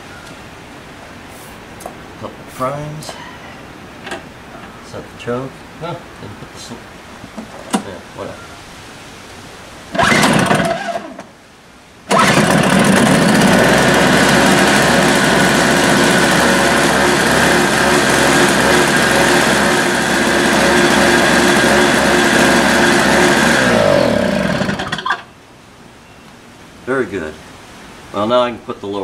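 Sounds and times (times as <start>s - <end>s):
snowblower engine running: 9.9s - 11.2s, 12.1s - 25.1s
engine pull starter: 9.9s - 11.3s, 12.1s - 25.3s.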